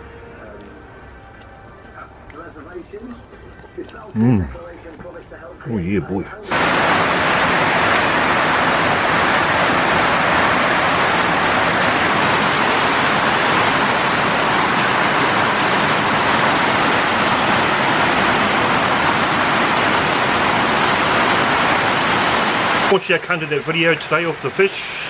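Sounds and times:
heavy rain on metal roof: 5.7 - 25.0.

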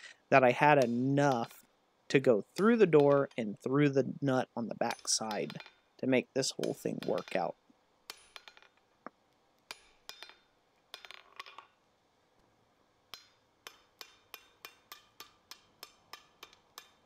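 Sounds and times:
hammer striking hot steel on anvil: 0.8 - 1.6, 6.6 - 7.4, 13.1 - 17.0.

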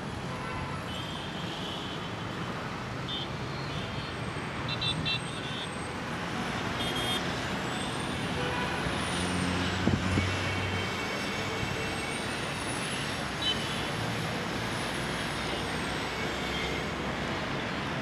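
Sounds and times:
passing vehicles: 0.0 - 18.0.

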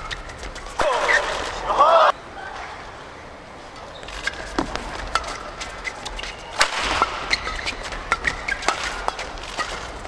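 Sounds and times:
shoes squeaking on court floor: 0.0 - 1.7, 3.8 - 10.0
arena crowd noise: 0.8 - 4.0
rackets striking shuttlecock: 4.2 - 10.0.

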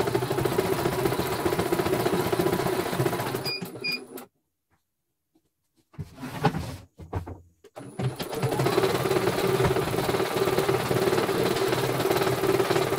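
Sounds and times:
embroidery machine stitching: 0.0 - 4.3, 7.8 - 12.9.

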